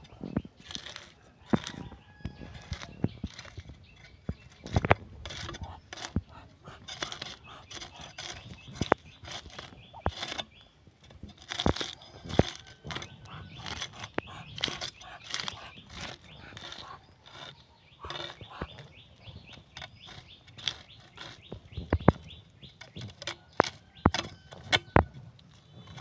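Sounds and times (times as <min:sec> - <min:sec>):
knife scraping fish scales: 0:02.5 - 0:10.5, 0:11.4 - 0:18.8.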